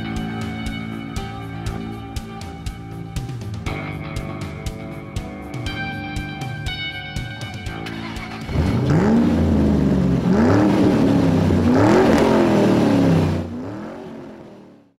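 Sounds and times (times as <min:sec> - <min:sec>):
car engine accelerating hard: 0:07.8 - 0:15.0.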